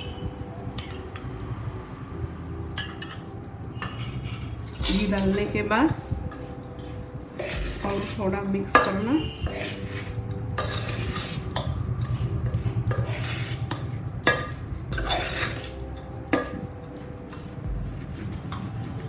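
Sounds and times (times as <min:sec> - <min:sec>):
spoon clinking against pot: 0:02.8 - 0:17.6
spoon stirring thick mixture: 0:03.9 - 0:15.8.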